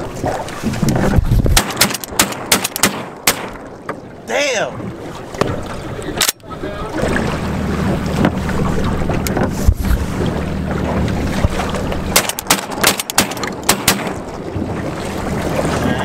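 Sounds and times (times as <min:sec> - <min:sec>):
wind on microphone: 0:00.0 - 0:02.2, 0:04.8 - 0:12.2
sharp cracks: 0:01.5 - 0:03.6, 0:12.1 - 0:14.2
low motor hum: 0:04.8 - 0:16.0.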